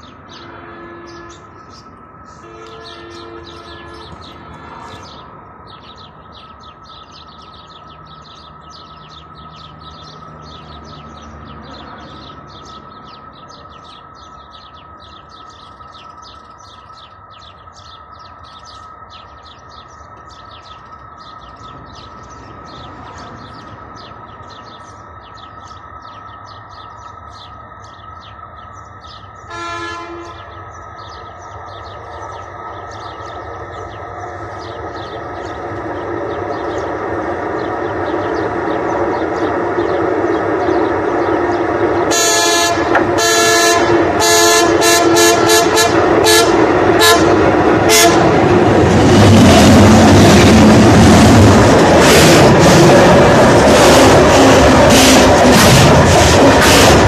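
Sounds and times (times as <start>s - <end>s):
birds chirping: 0.0s - 57.0s
train rumble: 0.0s - 57.0s
train horn: 0.3s - 1.6s, 2.3s - 5.0s, 29.5s - 30.6s, 42.1s - 48.5s.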